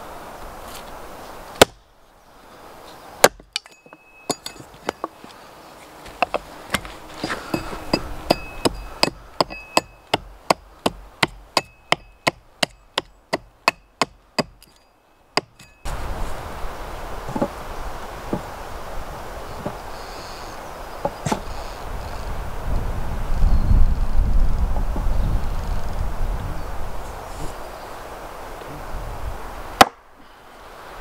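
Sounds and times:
steady hiss: 0:00.0 - 0:31.0
axe chopping wood: 0:01.6 - 0:01.8, 0:03.2 - 0:03.7, 0:06.0 - 0:14.8, 0:15.4 - 0:15.7.

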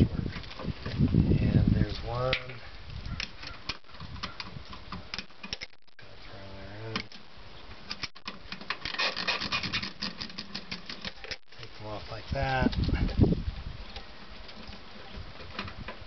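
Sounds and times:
clicks: 0:02.3 - 0:06.0
rubber hoses rubbing and scraping: 0:06.7 - 0:16.0.

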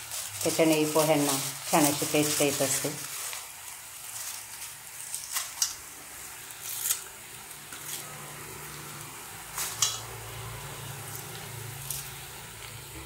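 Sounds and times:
sharp crackles: 0:00.0 - 0:08.1
food sizzling in hot oil: 0:00.0 - 0:13.0.

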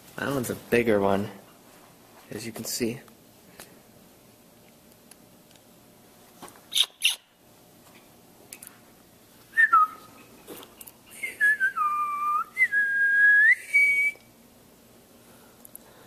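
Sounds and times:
whistled tune: 0:09.5 - 0:10.1, 0:11.1 - 0:14.2.

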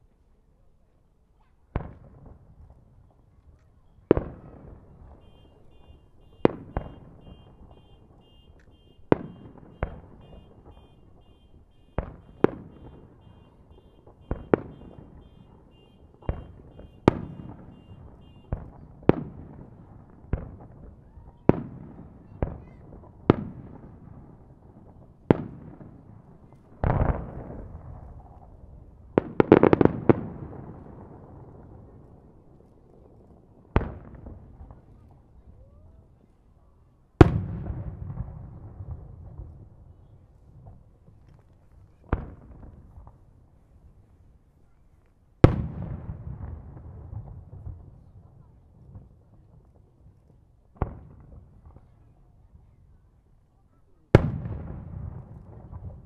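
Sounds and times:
firework crackling: 0:01.8 - 0:35.6.

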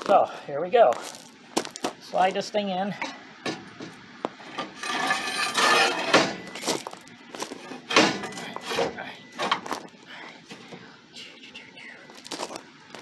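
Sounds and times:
steel bar scraping in tube: 0:04.6 - 0:06.2.

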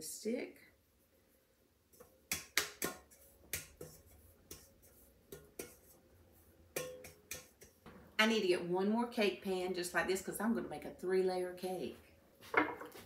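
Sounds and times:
light taps on metal pan: 0:06.8 - 0:08.0.

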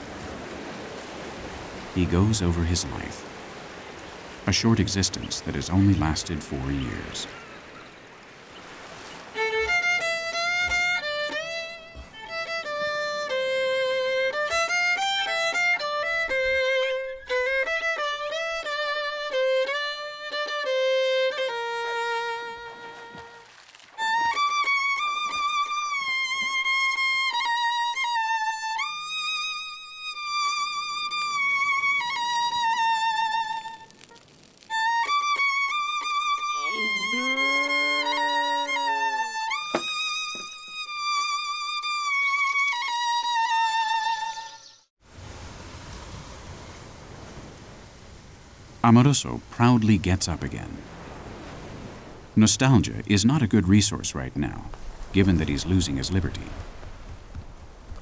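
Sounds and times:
solo violin melody: 0:09.2 - 0:44.8.

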